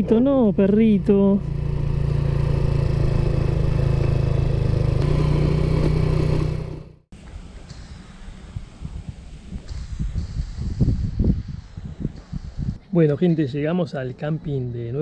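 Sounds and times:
motorcycle engine running: 0.0 - 7.1
leaves rustling in breeze: 7.2 - 14.0.

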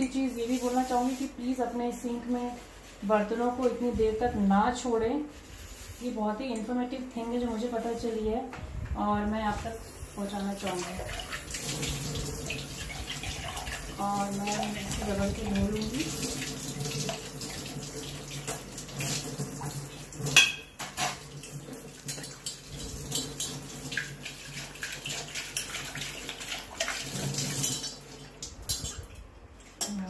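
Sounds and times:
kitchen tap running: 9.9 - 29.1
metal pots clinking: 20.3 - 21.2.

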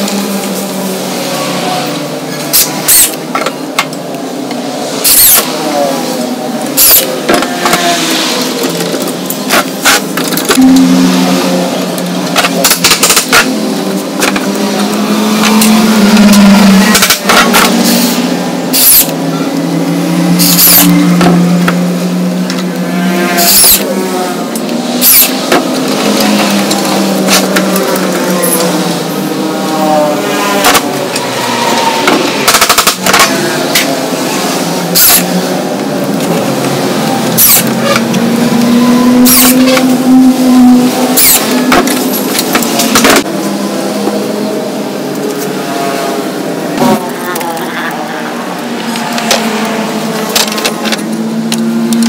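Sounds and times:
electronic music: 0.0 - 12.9
high metallic squeals: 10.4 - 11.9, 14.6 - 21.6, 22.8 - 35.6, 37.1 - 42.2.

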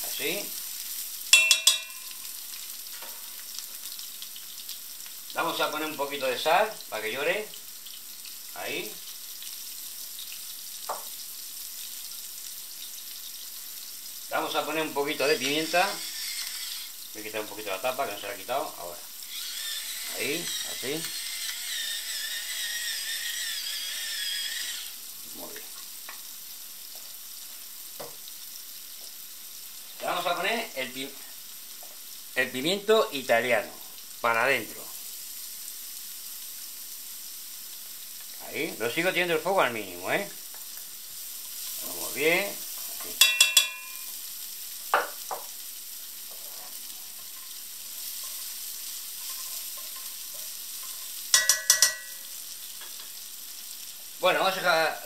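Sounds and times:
onion frying in oil: 0.0 - 55.0
pepper mill grinding: 1.4 - 2.3, 15.1 - 17.0, 19.2 - 25.0
utensil clacking against pan: 1.4 - 2.3, 43.0 - 44.1, 49.2 - 52.2
utensil scraping pan: 15.2 - 16.9, 46.3 - 52.3.

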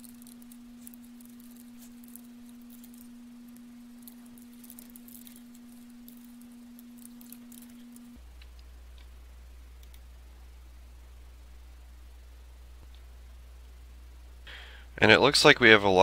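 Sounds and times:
computer keyboard typing: 0.0 - 8.2
low electrical hum: 0.0 - 16.0.

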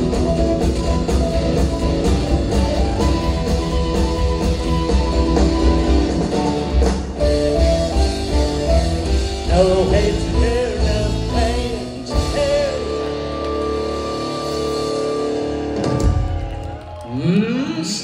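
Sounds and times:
wavering lead melody: 0.0 - 16.1
live rock band playing: 0.0 - 17.1.

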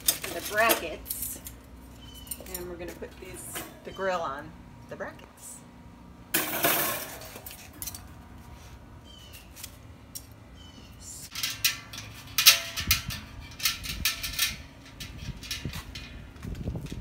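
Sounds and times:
metal brackets clinking and scraping: 0.0 - 4.2, 6.4 - 8.2, 11.3 - 17.0.

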